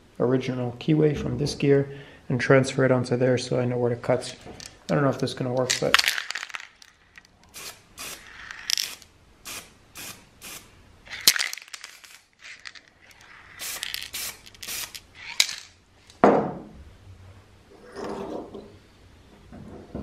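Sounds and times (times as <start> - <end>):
aerosol spray can hissing: 7.5 - 10.7, 13.1 - 15.0.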